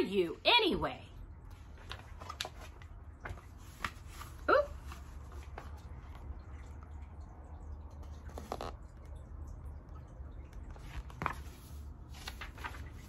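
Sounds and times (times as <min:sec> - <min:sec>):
picture book rustling and clicks: 0:01.5 - 0:06.5, 0:08.0 - 0:08.9, 0:10.5 - 0:13.0.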